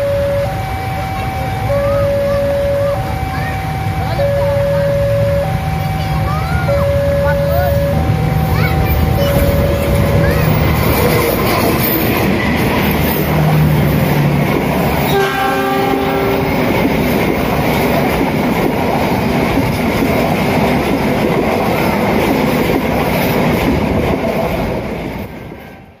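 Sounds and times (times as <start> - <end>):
locomotive engine passing: 0.0 - 25.9
train wheels rumbling on rail: 0.0 - 26.0
brief pitched tone: 9.1 - 11.2.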